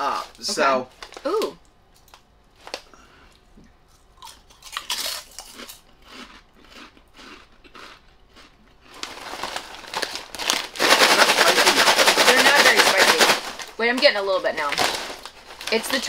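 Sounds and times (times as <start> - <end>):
crunching and chewing pork rinds: 2.0 - 13.2
paper snack bag rustling: 8.9 - 16.0.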